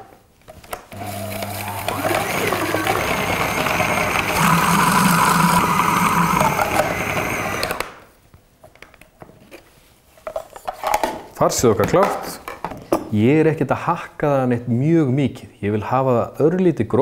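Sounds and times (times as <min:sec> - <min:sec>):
food processor motor running: 0:00.9 - 0:07.9.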